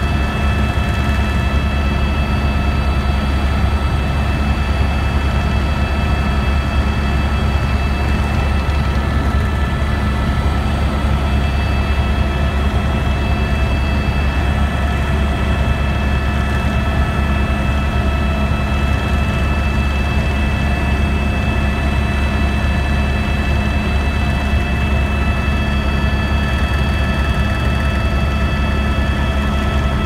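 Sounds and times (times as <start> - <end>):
helicopter drone: 0.0 - 30.0
high whine: 0.0 - 30.0.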